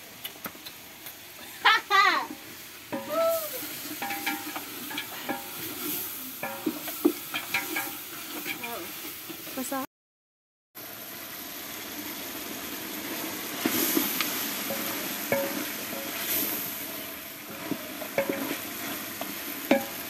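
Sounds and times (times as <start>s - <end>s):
stew sizzling in a pot: 0.0s - 9.9s, 10.8s - 20.0s
spoon clinking against pot: 4.0s - 5.6s.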